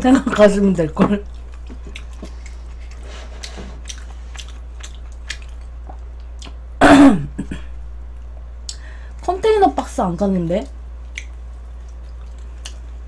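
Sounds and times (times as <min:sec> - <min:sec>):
chewing sounds: 0:00.3 - 0:06.7, 0:11.0 - 0:13.0.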